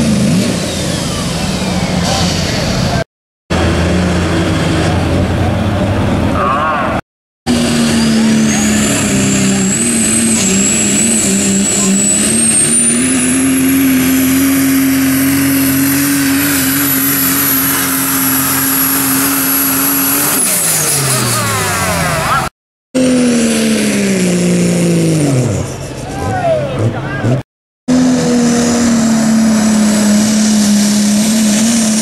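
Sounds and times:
turbocharger whistle: 0.0s - 2.6s, 7.5s - 26.4s
diesel truck engine drone: 0.0s - 32.0s.

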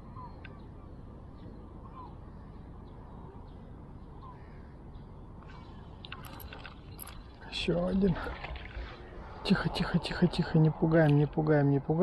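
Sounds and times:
faint crow-like bird calls: 0.0s - 6.5s
steady low rumble: 0.0s - 12.0s.

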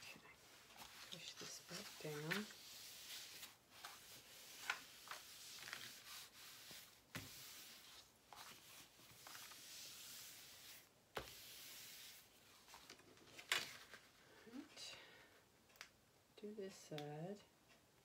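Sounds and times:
plastic film rubbing and rustling: 0.6s - 14.0s.

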